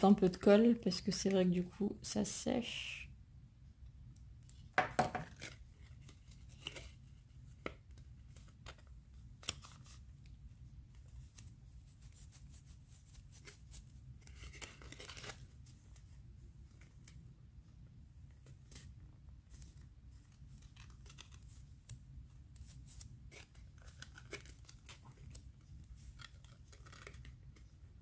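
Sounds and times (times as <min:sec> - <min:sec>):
paper crackling rustle: 0:11.0 - 0:17.2, 0:18.6 - 0:22.0, 0:22.6 - 0:27.8.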